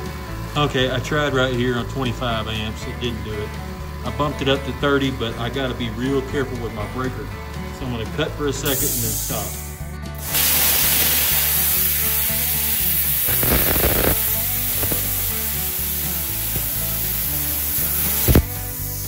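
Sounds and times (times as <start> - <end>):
plasma cutter hissing: 8.6 - 19.0
sharp pop: 13.3 - 15.2, 18.2 - 18.8.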